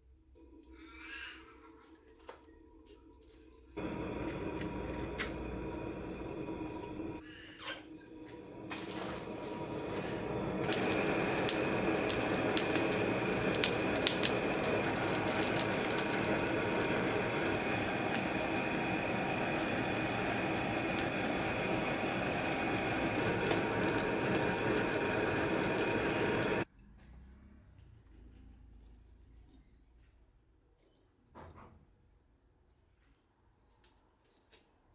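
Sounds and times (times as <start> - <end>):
charcoal fire crackling: 1.9 - 26.7
electric blower whining: 3.8 - 7.2, 8.0 - 26.6.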